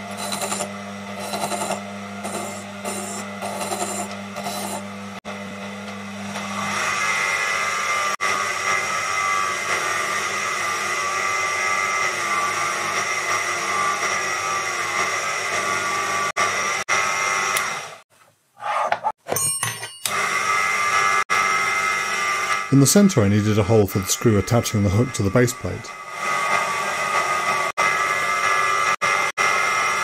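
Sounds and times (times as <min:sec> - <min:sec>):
hand tool cutting spinning metal: 0:00.0 - 0:04.9
metal lathe whining: 0:00.0 - 0:18.0, 0:20.0 - 0:30.0.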